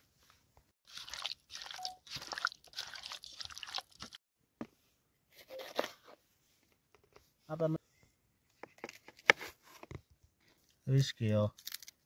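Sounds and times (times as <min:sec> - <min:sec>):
food crunching and rustling: 0:00.9 - 0:04.2.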